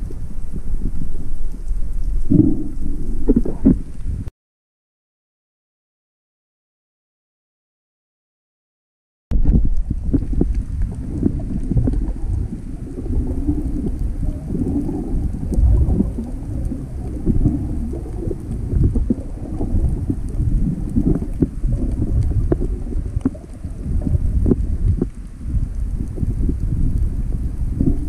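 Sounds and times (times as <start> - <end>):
muffled underwater water rumble: 0.0 - 4.3, 9.3 - 28.0
faint clicks: 9.5 - 28.0.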